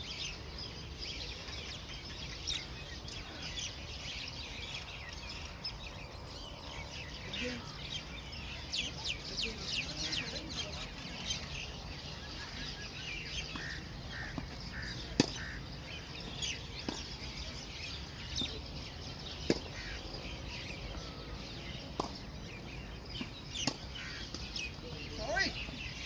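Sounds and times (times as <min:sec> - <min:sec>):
birds chirping: 0:00.0 - 0:26.0
tennis ball being hit: 0:14.3 - 0:15.5.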